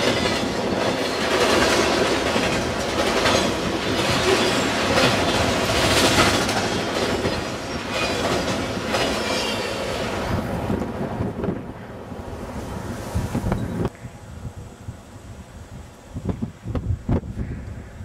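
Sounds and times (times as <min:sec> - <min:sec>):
freight train wheels clattering: 0:00.0 - 0:10.4.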